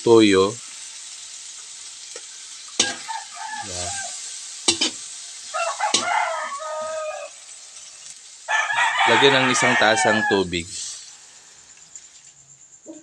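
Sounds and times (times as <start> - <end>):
food sizzling: 0.0 - 13.0
metal ladle clanking on a wok: 2.8 - 3.1, 4.7 - 5.0
rooster crowing: 2.8 - 4.3, 5.5 - 7.7, 8.5 - 11.7.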